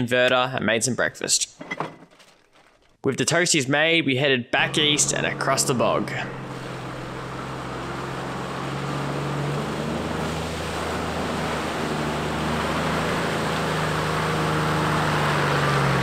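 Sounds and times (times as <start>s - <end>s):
truck engine running: 4.6s - 16.0s
water splashing: 4.8s - 16.0s.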